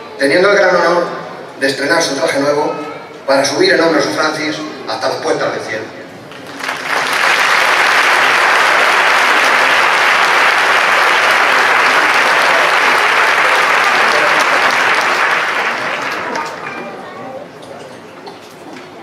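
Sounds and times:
large audience applauding: 6.3s - 17.0s.

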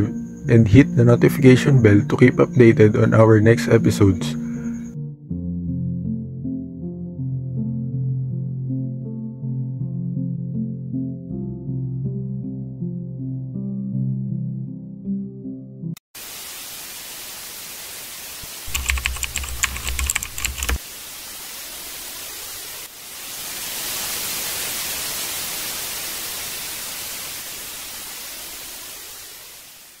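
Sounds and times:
tv static hiss: 16.2s - 30.0s
rapid keyboard typing: 18.7s - 20.8s.

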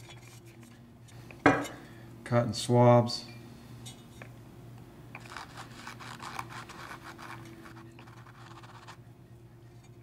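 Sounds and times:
faint steady hum: 0.0s - 10.0s
cotton swab scratchy rubbing: 5.2s - 9.0s.

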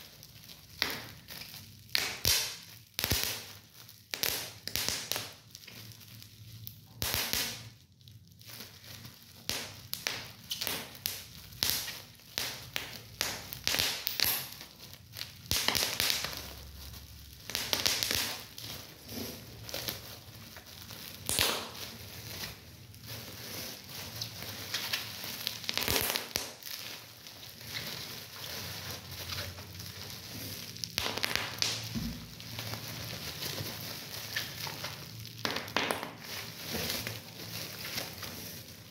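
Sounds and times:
bubble wrap popping: 0.0s - 38.9s
crinkling plastic: 0.0s - 38.9s.

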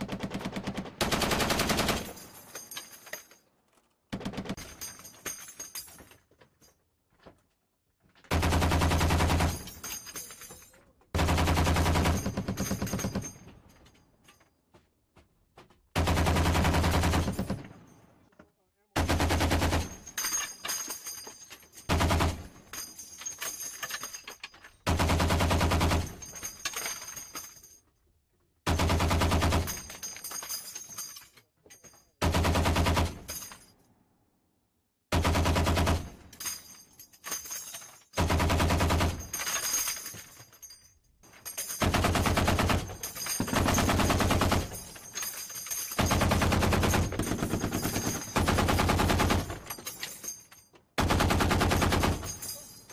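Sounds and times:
heavy machine gun firing bursts: 0.0s - 2.1s, 8.3s - 9.6s, 11.2s - 13.2s, 16.0s - 17.6s, 19.0s - 19.9s, 21.9s - 22.5s, 24.9s - 26.2s, 28.7s - 29.7s, 32.2s - 33.2s, 35.1s - 36.1s, 38.2s - 39.2s, 41.8s - 44.8s, 46.0s - 49.6s, 51.0s - 52.2s.

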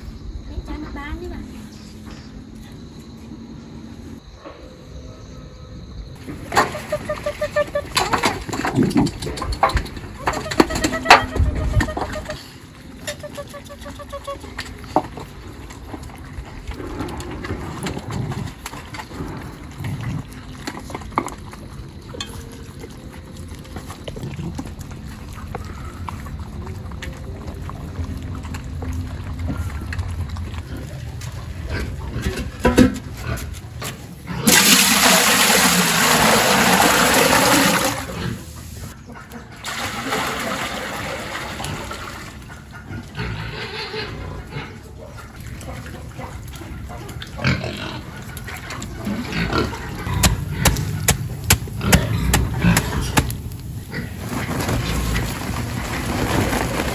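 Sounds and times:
puppies eating with small clinks: 13.0s - 33.5s
water pouring into a pot: 34.5s - 38.2s, 39.6s - 42.3s.

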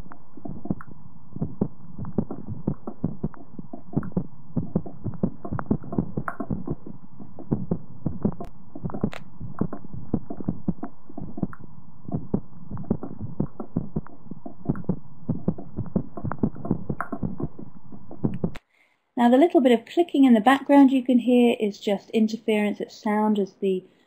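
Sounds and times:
heartbeat through stethoscope: 0.0s - 18.6s
faint interference clicks: 0.0s - 18.7s.

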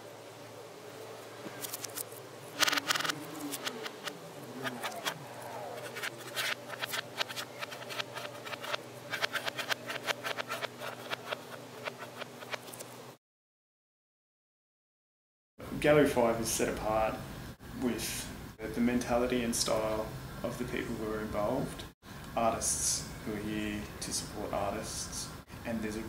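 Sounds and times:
steady low hum: 0.0s - 13.2s
marker scratching and squeaking: 2.6s - 12.9s.

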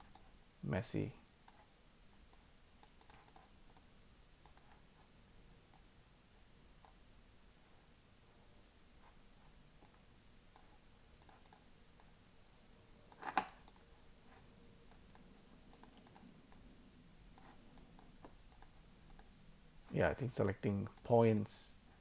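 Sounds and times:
computer mouse click: 0.0s - 0.3s, 2.3s - 4.7s, 6.8s - 7.0s, 9.8s - 12.1s, 14.9s - 16.6s, 17.4s - 19.3s.

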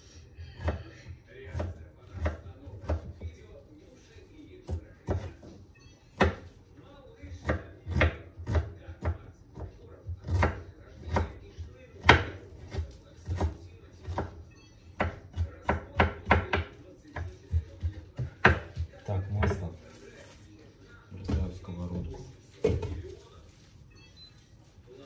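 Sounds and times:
knife chopping on wooden board: 7.4s - 11.4s, 12.0s - 14.4s, 15.0s - 19.6s.

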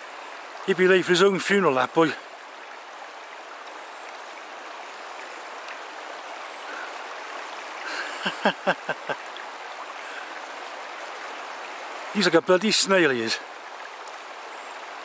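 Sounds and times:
rushing water: 0.0s - 15.0s.

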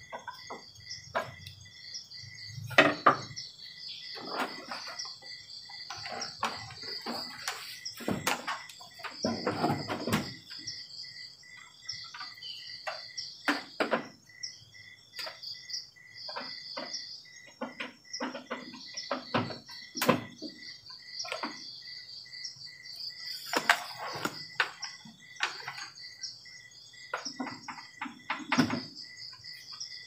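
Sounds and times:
insects chirping: 0.0s - 30.0s.

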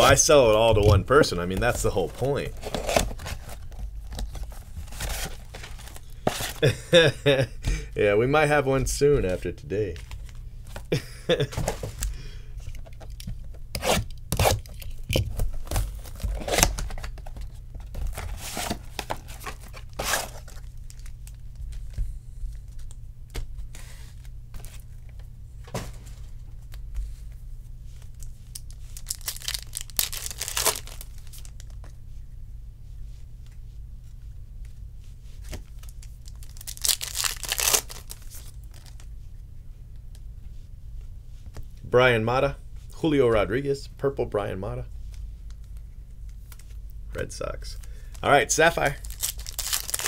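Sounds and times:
wrappers torn and crinkled: 28.2s - 31.8s, 35.7s - 39.1s, 48.8s - 50.0s.

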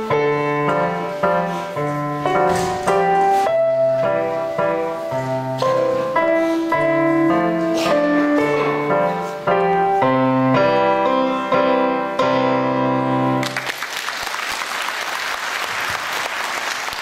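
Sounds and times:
digital piano chords: 0.0s - 13.6s
audience applause: 13.4s - 17.0s.

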